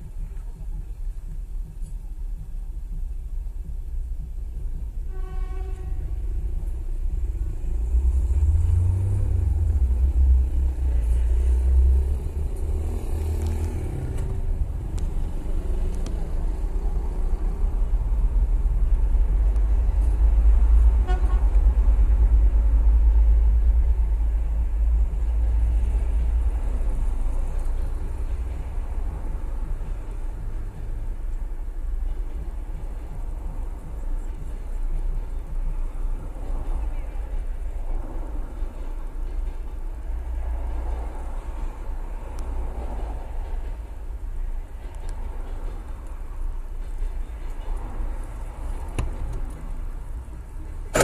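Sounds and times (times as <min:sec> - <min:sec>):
diesel locomotive rumbling past: 0:04.2 - 0:51.0
train horn toot: 0:05.0 - 0:06.4, 0:20.9 - 0:21.6.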